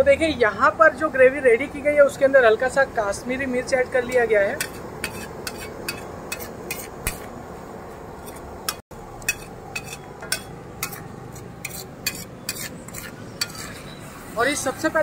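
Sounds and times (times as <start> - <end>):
steel spatula scraping on griddle: 4.1 - 7.4, 8.2 - 15.0.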